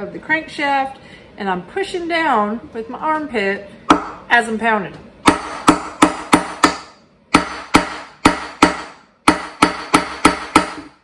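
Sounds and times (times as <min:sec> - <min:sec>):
hammer striking steel punch: 0:03.9 - 0:04.2, 0:05.2 - 0:11.0.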